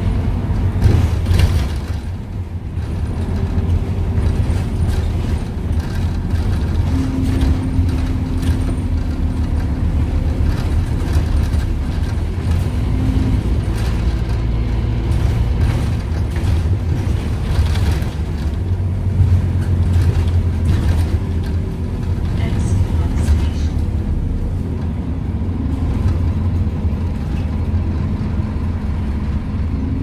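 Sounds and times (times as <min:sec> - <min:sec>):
bus engine drone: 0:00.0 - 0:30.0.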